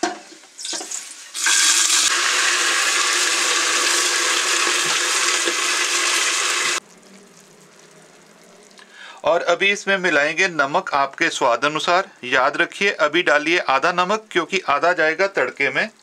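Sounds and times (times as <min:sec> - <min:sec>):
beans sizzling in hot oil: 0:00.0 - 0:07.2.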